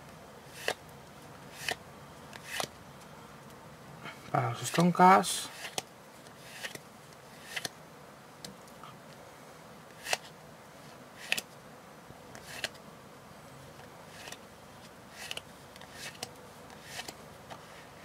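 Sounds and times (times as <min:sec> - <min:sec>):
playing cards snapping: 0:00.6 - 0:00.8, 0:01.6 - 0:02.7, 0:05.6 - 0:05.9, 0:06.5 - 0:06.8, 0:07.4 - 0:07.7, 0:09.9 - 0:10.3, 0:11.2 - 0:11.5, 0:12.4 - 0:12.8.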